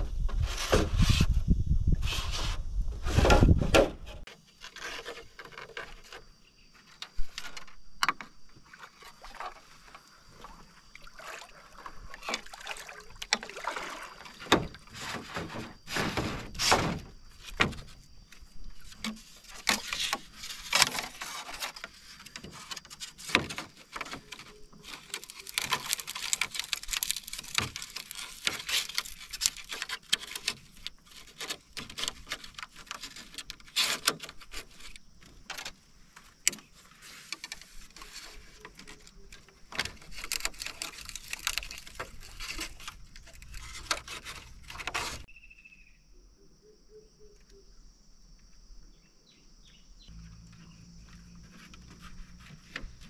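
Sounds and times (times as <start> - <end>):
scraping and rubbing: 0.0 - 7.8, 13.8 - 18.0, 18.7 - 45.3, 50.1 - 53.0
bamboo poles knocking together: 18.8 - 45.2.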